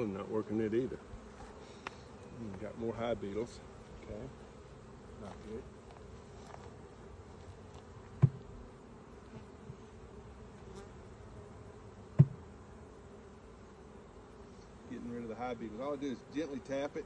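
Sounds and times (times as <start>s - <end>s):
bees buzzing: 0.0s - 17.0s
knocks on wooden hive frame: 8.2s - 8.5s, 12.1s - 12.5s.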